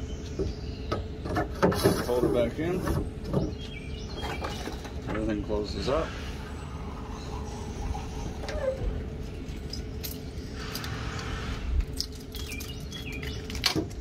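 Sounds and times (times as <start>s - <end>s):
steady low rumble: 4.9s - 14.0s.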